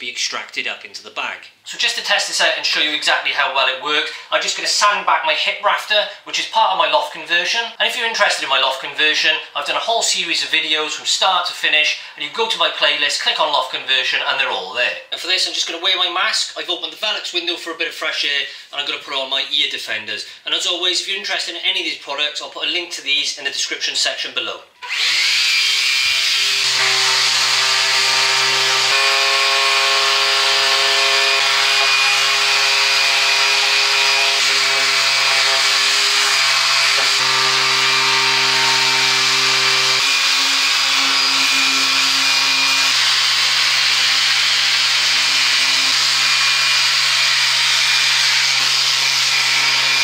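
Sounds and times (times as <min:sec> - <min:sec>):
orbital sander motor hum: 0:24.9 - 0:50.0.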